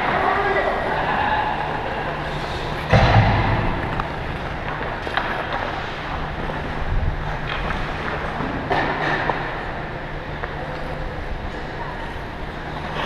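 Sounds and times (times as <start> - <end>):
low hum: 0.9 - 8.2
loud thump: 2.9 - 4.8.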